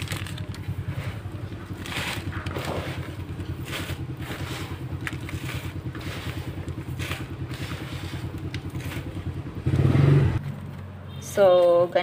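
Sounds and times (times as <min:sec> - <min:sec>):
plastic bag and soil rustling: 0:00.0 - 0:09.4
engine idling: 0:00.0 - 0:11.2.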